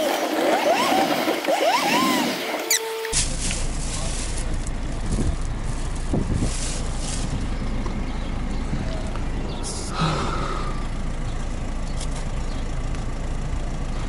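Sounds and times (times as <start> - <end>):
plastic bag rustling: 3.1 - 7.4
steady low rumble: 3.1 - 14.0.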